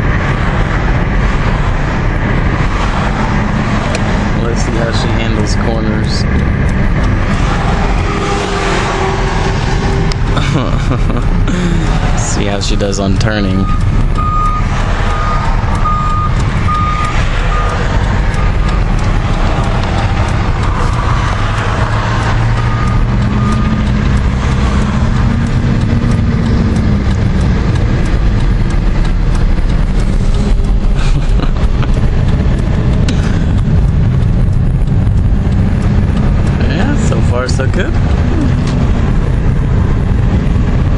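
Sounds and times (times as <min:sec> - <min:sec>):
car engine and road rumble: 0:00.0 - 0:40.9
high electronic beep: 0:12.4 - 0:19.0, 0:22.5 - 0:23.9.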